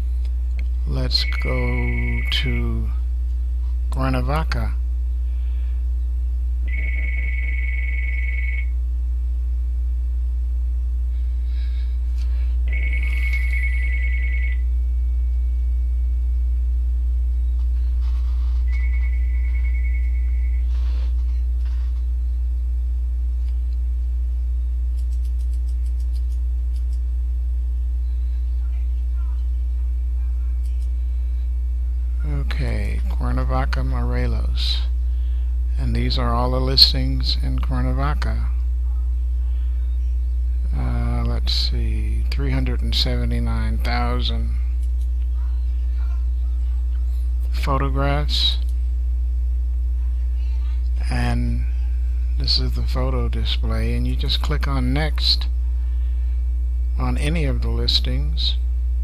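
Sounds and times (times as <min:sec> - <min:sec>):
loud mains hum: 0:00.0 - 0:59.0
electronic telephone ringing: 0:01.2 - 0:02.5, 0:06.7 - 0:08.7, 0:12.7 - 0:14.7.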